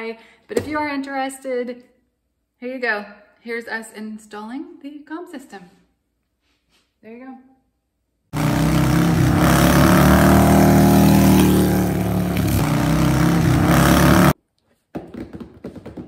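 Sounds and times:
motorcycle engine revving: 0:08.4 - 0:14.4.

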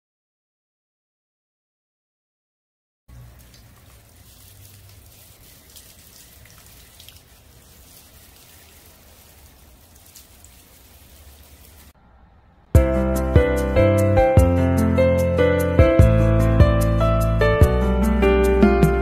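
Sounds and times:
water spray pattering on leaves: 0:03.1 - 0:12.0.

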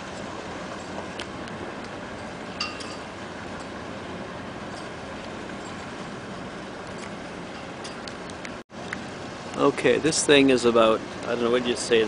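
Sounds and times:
ship engines rumbling: 0:00.0 - 0:12.0
short metallic clink: 0:02.6 - 0:03.1.

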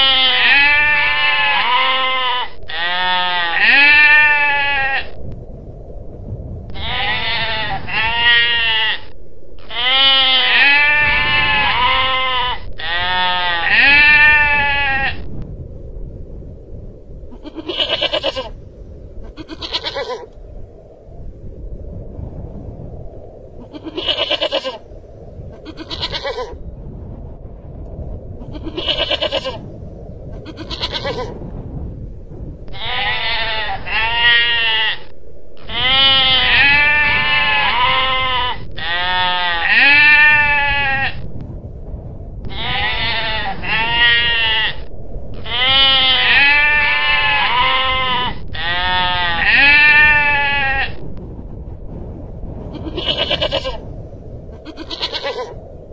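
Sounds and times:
steady low background noise: 0:00.0 - 0:25.9
bleats rising and falling: 0:19.3 - 0:20.4
goral calling: 0:19.3 - 0:20.4.

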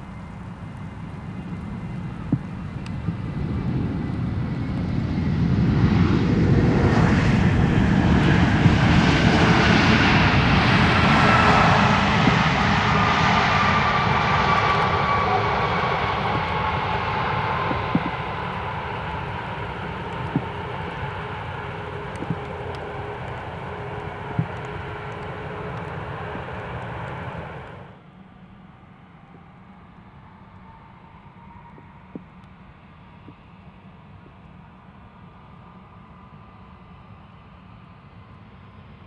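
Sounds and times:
jet engines spooling down: 0:00.0 - 0:28.6.

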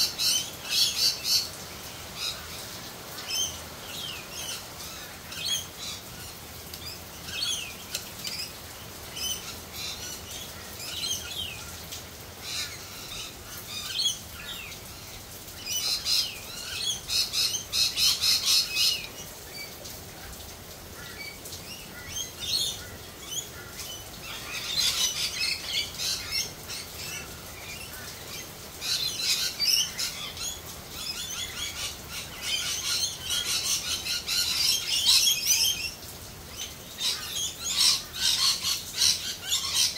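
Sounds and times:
parrots screeching and chattering: 0:37.0 - 0:39.9.

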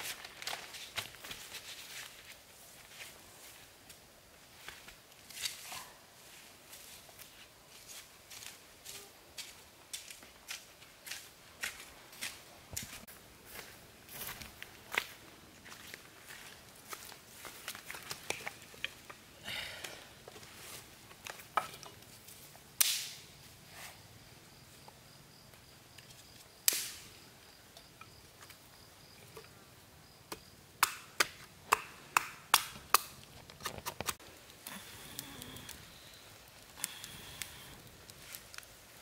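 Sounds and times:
sharp wood cracks: 0:22.8 - 0:23.2, 0:26.6 - 0:27.1, 0:30.3 - 0:35.8.

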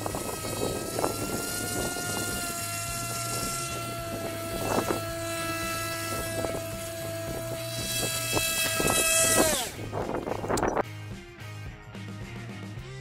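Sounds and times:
boat motor whining: 0:00.0 - 0:10.8
wind noise on microphone: 0:00.0 - 0:10.8.

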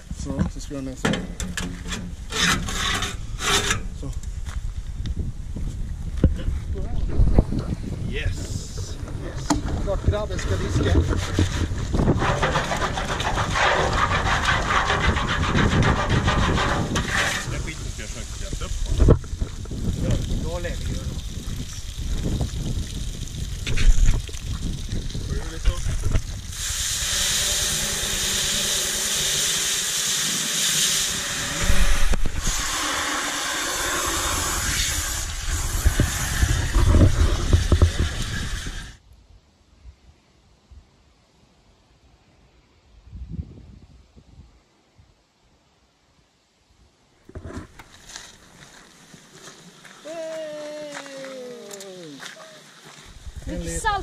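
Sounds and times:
hose spraying water into pot: 0:08.1 - 0:39.0
low bumps and knocks: 0:08.3 - 0:17.8
brush scrubbing metal cauldron: 0:10.3 - 0:18.4.

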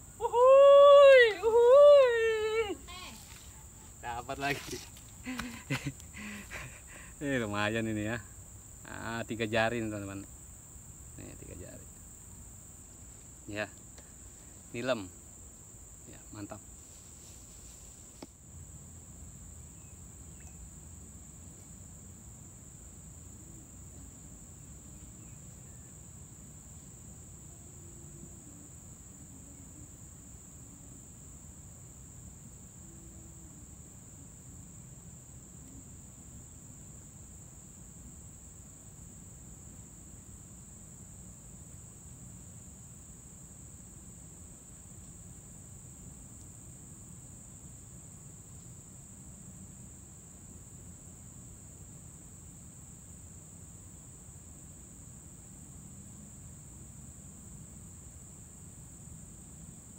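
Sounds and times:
high-pitched insect drone: 0:00.0 - 0:12.2, 0:12.8 - 0:18.2, 0:19.0 - 0:38.1.

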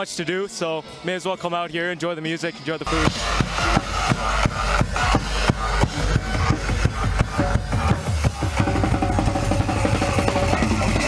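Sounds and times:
fast drum kit beat: 0:02.9 - 0:11.0
rock band playing: 0:02.9 - 0:11.0.

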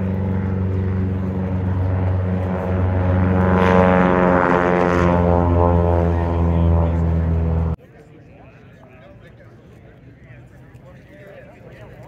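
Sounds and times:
propeller airplane engine drone: 0:00.0 - 0:07.8.

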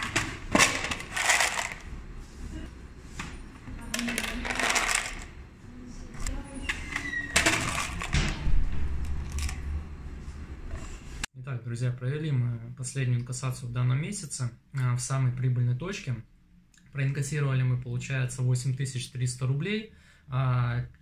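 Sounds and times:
coins jingling in plastic tray: 0:04.1 - 0:05.3.

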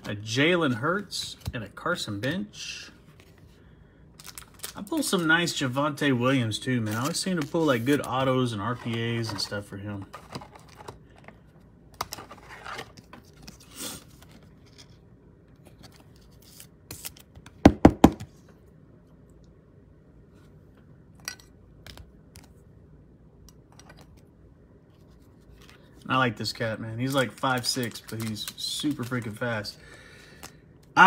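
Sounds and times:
hands handling trading cards: 0:00.0 - 0:01.8, 0:04.2 - 0:05.6, 0:06.8 - 0:18.4, 0:24.9 - 0:26.1, 0:27.0 - 0:31.0.

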